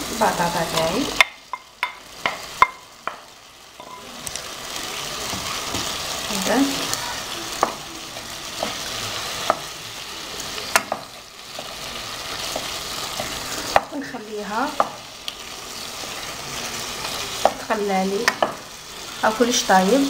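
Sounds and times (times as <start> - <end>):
potatoes sizzling in a pan: 0.0 - 20.0
spatula scraping and tapping pan: 0.7 - 4.4, 10.7 - 14.1, 14.7 - 15.4, 17.0 - 18.7.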